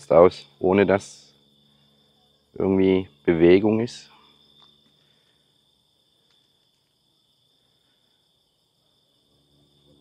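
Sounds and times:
night insects chirring: 0.0s - 10.0s.

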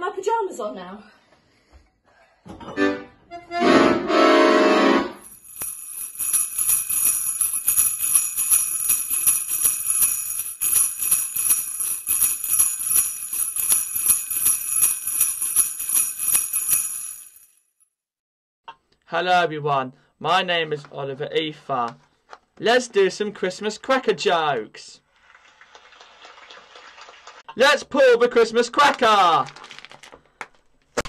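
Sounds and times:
jingle bells shaking: 5.2s - 17.6s.

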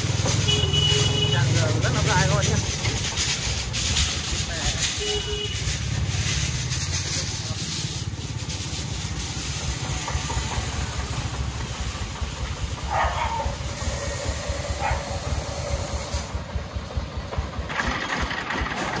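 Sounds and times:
diesel engine chugging: 0.0s - 19.0s
steady hiss: 2.0s - 12.9s, 13.6s - 16.7s.

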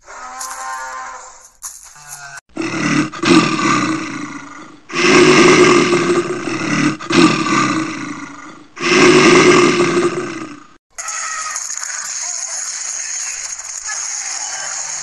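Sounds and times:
dinosaur roaring: 2.5s - 10.8s.

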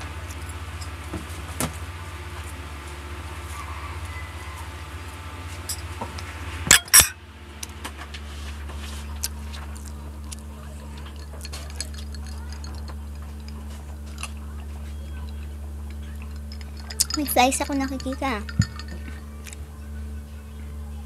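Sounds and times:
low hum: 4.2s - 21.0s
plate and fork clinking: 11.0s - 13.8s, 16.0s - 19.2s
cutlery and glass clicks: 16.2s - 19.2s.

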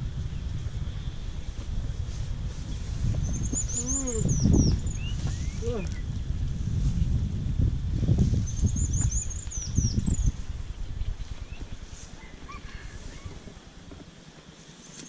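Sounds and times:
low rumble: 0.0s - 12.1s
small bird chirping: 3.1s - 6.2s, 8.3s - 10.4s.

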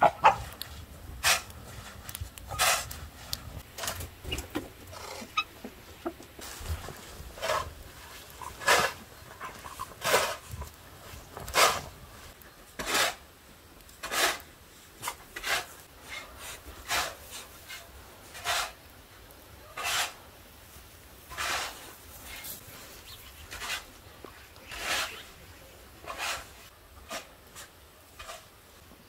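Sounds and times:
snow shovel scraping snow: 6.4s - 9.1s, 9.8s - 12.0s, 12.8s - 13.2s, 14.0s - 18.8s, 19.8s - 20.2s, 21.2s - 24.0s, 24.7s - 25.4s, 26.0s - 28.5s.

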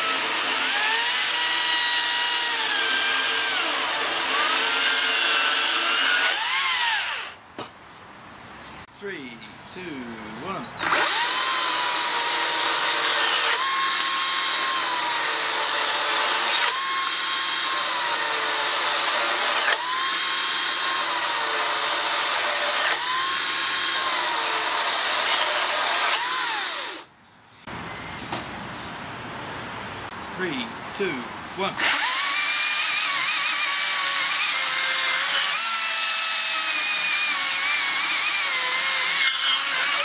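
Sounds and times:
chainsaw cutting wood: 0.0s - 7.4s, 10.8s - 27.1s, 31.8s - 40.0s.

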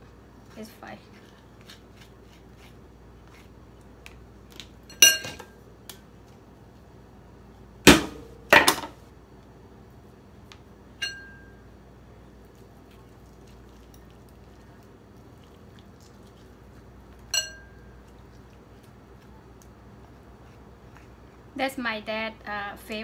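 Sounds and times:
metal spoon clinking on bowl: 4.9s - 5.5s, 11.0s - 11.6s, 17.3s - 17.8s.

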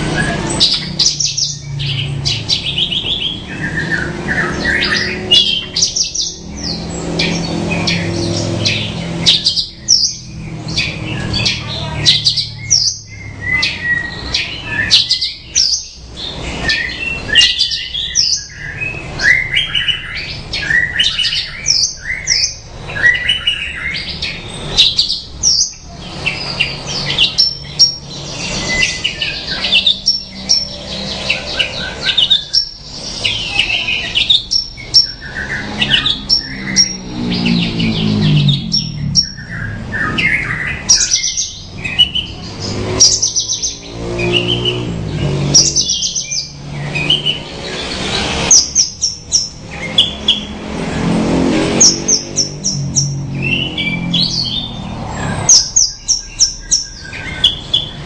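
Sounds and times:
lark singing: 55.5s - 58.0s.

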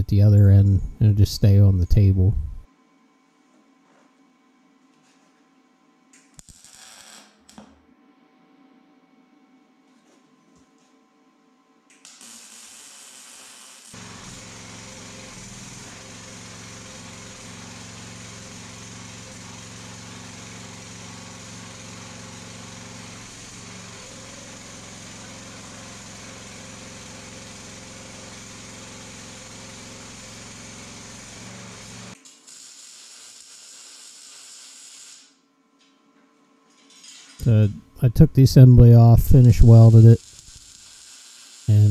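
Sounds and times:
small gasoline engine running: 14.0s - 32.2s
steady hiss: 37.0s - 41.9s.

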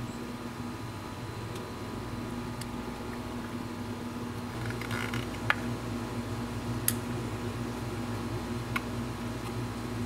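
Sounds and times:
air conditioner humming: 0.0s - 10.0s.

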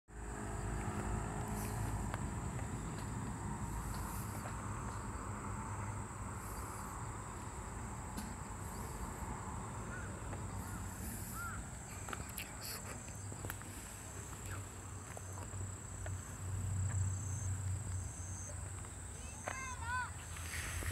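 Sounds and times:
insects trilling: 0.2s - 20.9s.

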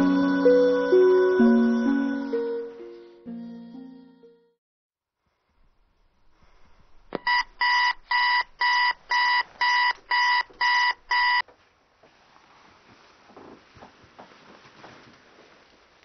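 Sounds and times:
alarm clock beeping: 7.2s - 11.4s.

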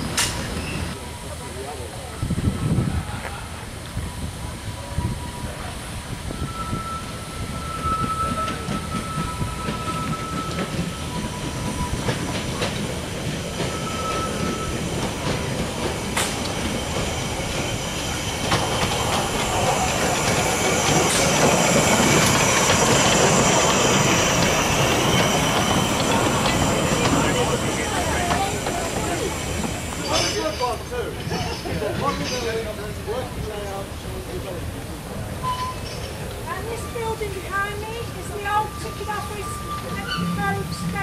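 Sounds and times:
steam train engine rumble: 0.0s - 41.0s
high wheel squeal: 4.1s - 31.7s, 35.4s - 41.0s
wheels clicking over rail joints: 8.1s - 32.9s.

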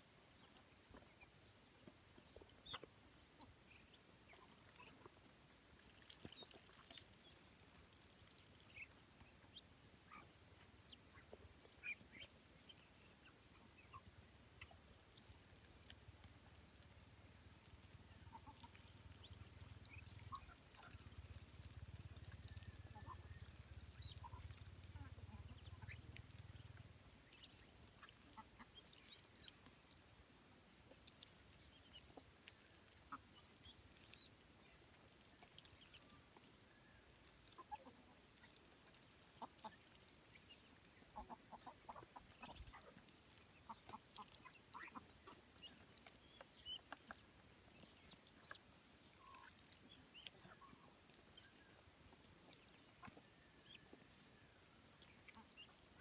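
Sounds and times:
bills pecking at feed: 0.4s - 17.0s, 17.6s - 56.0s
ducks and hens calling: 18.2s - 29.5s, 41.0s - 56.0s.

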